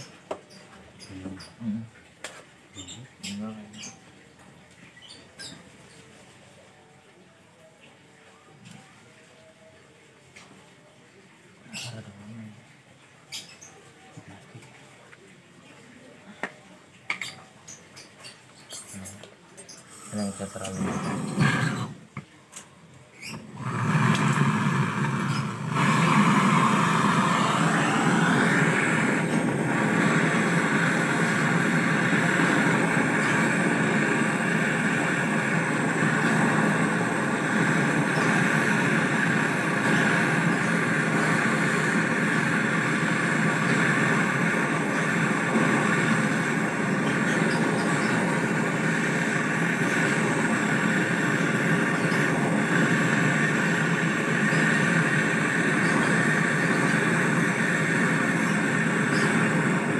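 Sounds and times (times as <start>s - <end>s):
gas torch hissing: 0.0s - 1.8s, 18.7s - 59.9s.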